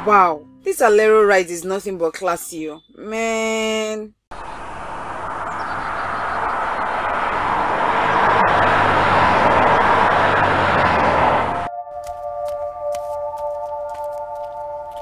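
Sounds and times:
car engine and road noise: 0.0 - 0.8, 4.3 - 15.0.

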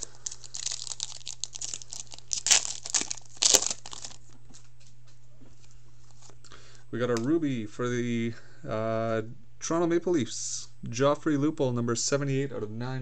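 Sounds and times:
foil wrapper tearing and crinkling: 0.0 - 4.2.

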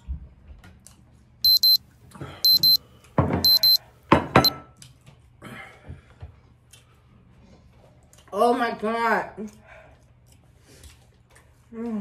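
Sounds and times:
timer alarm beeping: 1.5 - 1.8, 2.4 - 2.8, 3.4 - 3.8.

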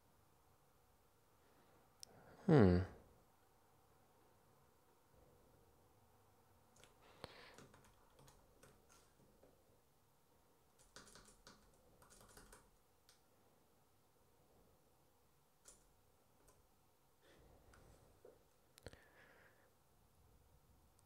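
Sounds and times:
typing on a computer keyboard: 6.8 - 9.1, 10.7 - 13.2, 15.6 - 16.6.

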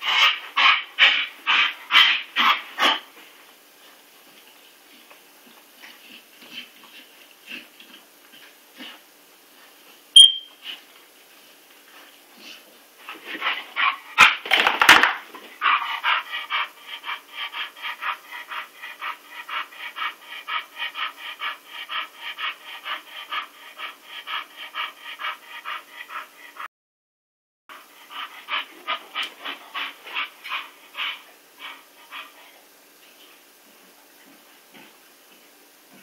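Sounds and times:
dog panting fast: 15.6 - 26.7, 27.7 - 32.6.

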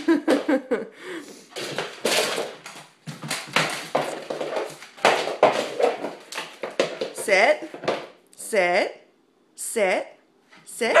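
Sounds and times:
dog paws scrabbling on wood floor: 1.5 - 8.2.

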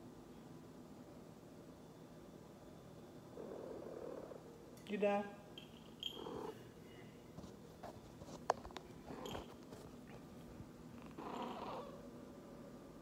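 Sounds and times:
cat purring: 3.3 - 4.5, 6.0 - 6.6, 10.9 - 12.0.

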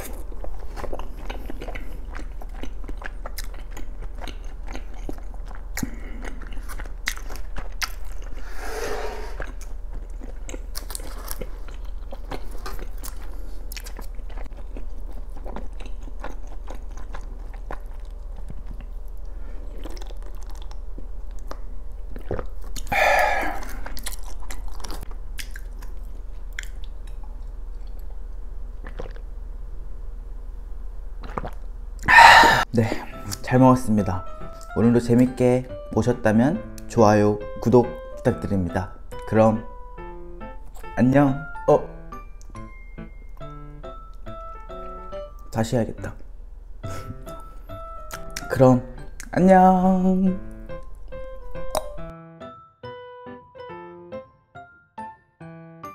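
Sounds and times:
chewing with mouth clicks: 0.0 - 8.4, 9.4 - 28.2, 28.8 - 29.3, 31.2 - 32.6, 48.0 - 48.5
sipping broth: 32.0 - 32.6.

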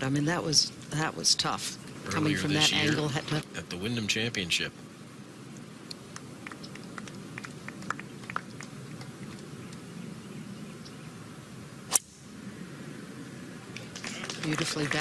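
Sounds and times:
crowd murmuring: 2.0 - 3.2.

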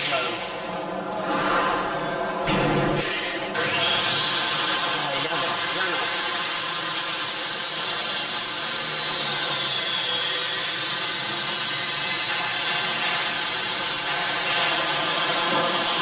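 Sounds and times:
power tool machine drone: 3.0 - 16.0.

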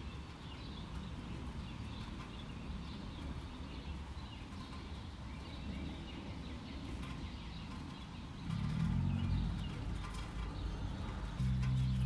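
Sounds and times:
birds chirping: 0.0 - 12.0
traffic rumble: 0.0 - 12.0
passing vehicle: 8.5 - 12.0.

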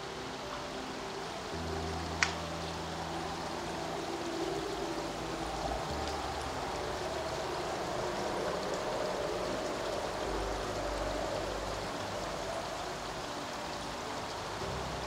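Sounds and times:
stream flowing over stones: 0.0 - 15.0.

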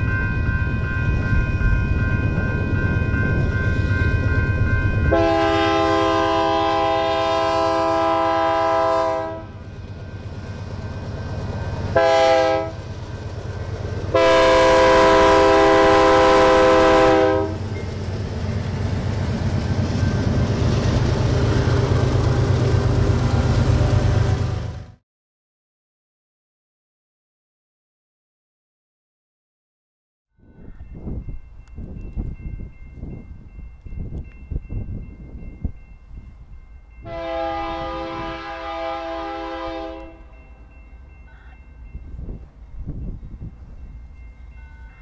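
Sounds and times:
train rumbling past: 0.0 - 25.0, 30.4 - 45.0
locomotive horn blasts: 5.1 - 9.6, 11.9 - 12.8, 14.1 - 17.6, 37.0 - 40.3.

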